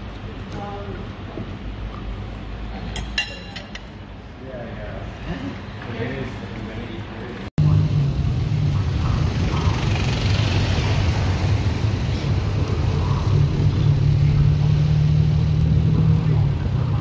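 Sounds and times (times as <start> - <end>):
tuk-tuk engine running: 7.6 - 17.0.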